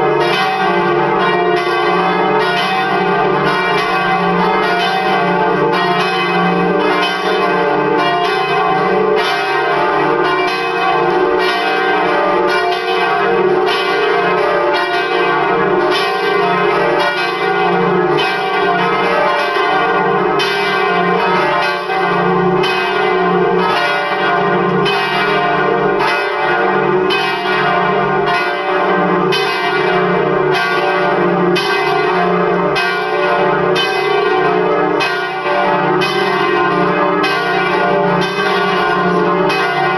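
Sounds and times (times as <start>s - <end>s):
church bells ringing: 0.0s - 39.9s.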